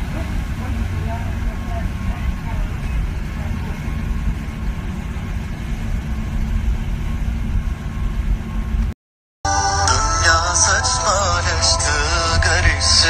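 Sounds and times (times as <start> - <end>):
boat engine rumble: 0.0 - 13.0
music: 9.5 - 13.0.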